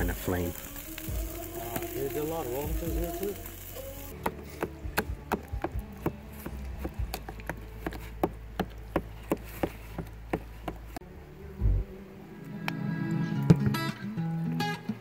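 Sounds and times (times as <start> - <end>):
wood fire crackling: 0.0 - 11.0
low hum: 11.0 - 13.4.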